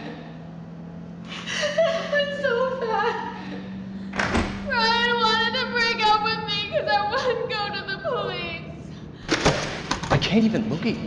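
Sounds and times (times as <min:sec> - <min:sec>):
steady low drone: 0:00.0 - 0:11.0
woman crying wail: 0:01.3 - 0:03.9, 0:04.7 - 0:08.7.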